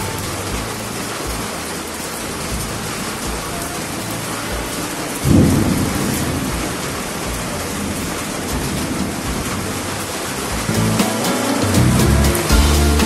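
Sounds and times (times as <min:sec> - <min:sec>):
steady rain falling: 0:00.0 - 0:13.0
low rumble of thunder: 0:05.2 - 0:09.8.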